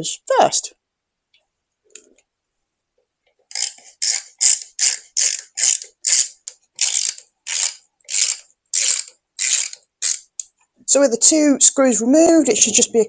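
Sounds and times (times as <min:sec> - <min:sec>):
ratcheting screwdriver clicking: 0:03.5 - 0:10.5.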